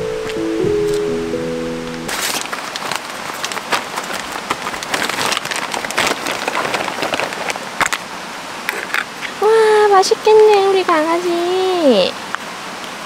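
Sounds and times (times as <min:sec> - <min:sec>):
stream rushing: 0:00.0 - 0:09.5
packaging crinkling: 0:02.1 - 0:08.1.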